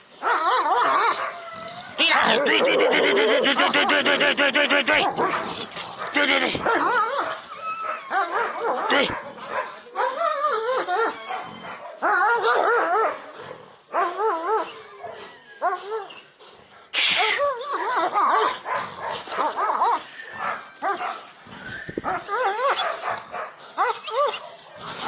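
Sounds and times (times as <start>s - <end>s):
dog yelping and crying: 0.2s - 13.2s, 13.9s - 16.4s, 17.1s - 21.3s, 22.0s - 23.2s, 23.8s - 24.6s.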